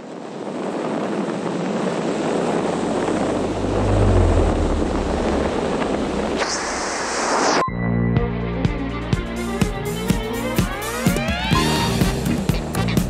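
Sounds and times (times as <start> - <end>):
wind buffeting microphone: 0.0 - 6.7.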